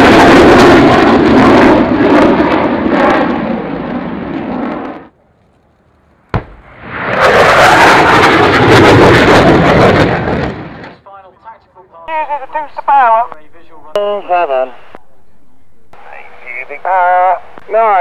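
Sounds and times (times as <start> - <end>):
pyrotechnic explosions: 0.0 - 5.1, 6.2 - 11.0
jet roar: 0.0 - 11.3, 12.1 - 18.0
sharp crack: 5.4 - 8.3.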